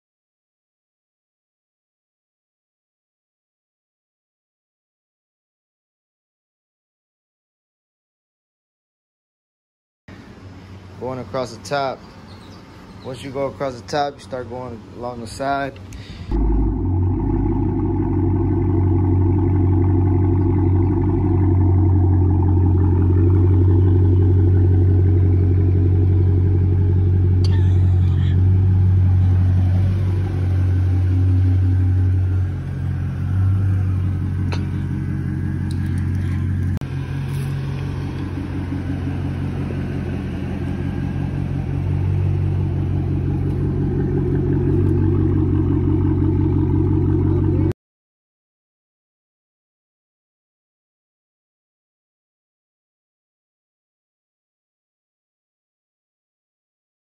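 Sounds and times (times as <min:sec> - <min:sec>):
car engine with deep exhaust: 0:10.1 - 0:47.8.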